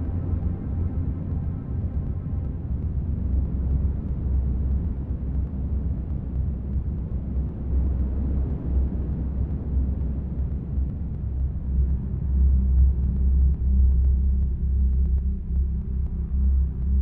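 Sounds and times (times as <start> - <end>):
low rumbling drone: 0.0 - 17.0.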